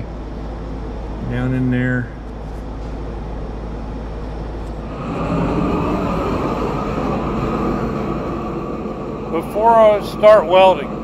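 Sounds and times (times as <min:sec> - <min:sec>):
steady low hum: 0:00.0 - 0:11.0
gas torch flame rushing: 0:04.7 - 0:11.0.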